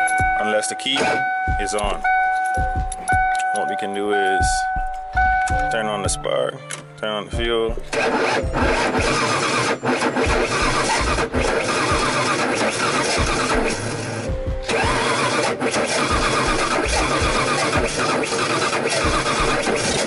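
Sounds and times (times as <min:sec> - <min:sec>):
car engine cranking on starter: 0:07.9 - 0:20.0.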